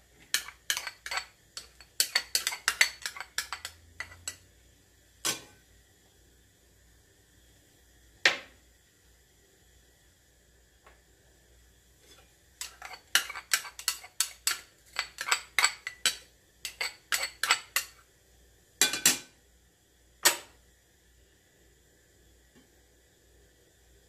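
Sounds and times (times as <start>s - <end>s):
glass bowl clinking on bowl rim: 0.4s - 4.4s
dishes being set down: 5.2s - 5.6s, 18.8s - 19.3s.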